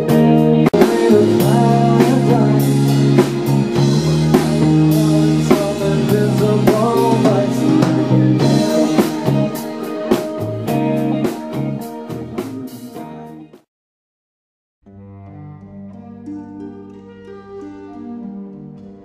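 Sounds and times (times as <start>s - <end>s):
rock band playing: 0.0s - 13.7s.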